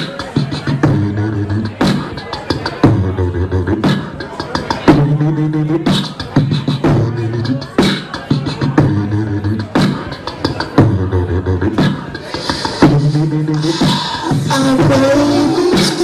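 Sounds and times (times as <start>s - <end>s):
beatboxing: 0.0s - 16.0s.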